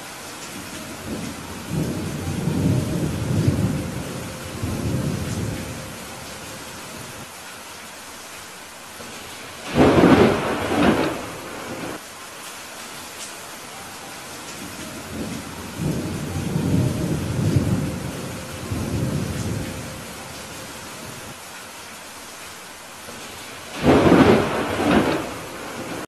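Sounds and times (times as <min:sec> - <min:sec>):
steady rain: 0:00.0 - 0:26.0
thunder rolling: 0:01.0 - 0:05.9, 0:09.6 - 0:12.0, 0:15.1 - 0:20.0, 0:23.7 - 0:26.0
loud thunderclap: 0:09.7 - 0:12.0, 0:23.7 - 0:26.0.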